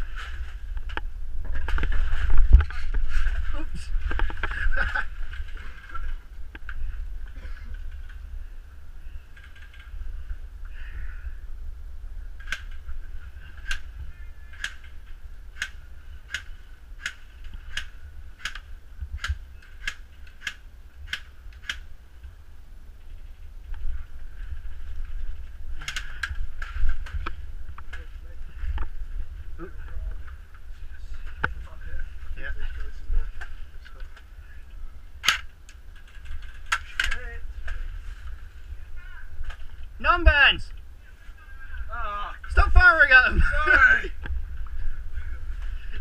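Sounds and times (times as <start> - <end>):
steady low rumble: 0.0 - 46.0.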